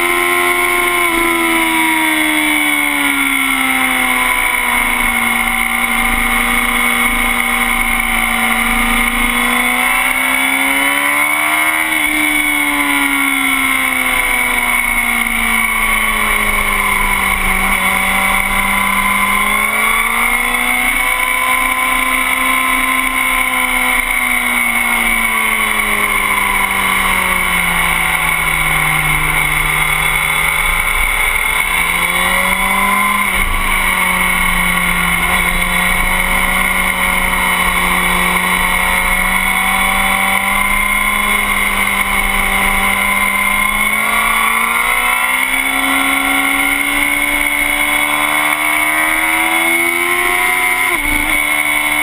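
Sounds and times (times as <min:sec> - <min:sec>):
motorcycle engine revving: 0:00.0 - 0:52.0
steady high whine: 0:00.0 - 0:52.0.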